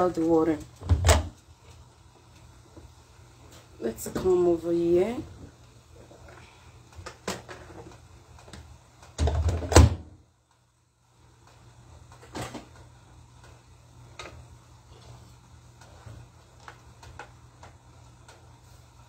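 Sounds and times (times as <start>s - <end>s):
light kitchen knocks and clicks: 6.9s - 10.1s.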